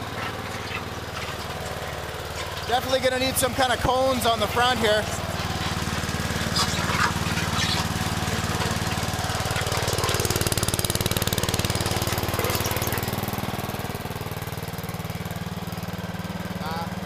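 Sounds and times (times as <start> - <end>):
small engine running under load: 0.0 - 17.0.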